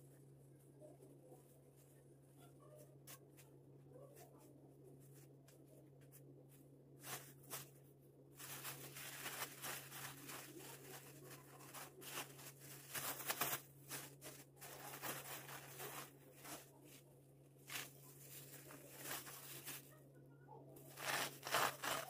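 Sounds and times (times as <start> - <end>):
steady low hum: 0.0 - 22.0
plastic bags rustling: 7.0 - 7.8, 8.4 - 20.0, 20.8 - 22.0.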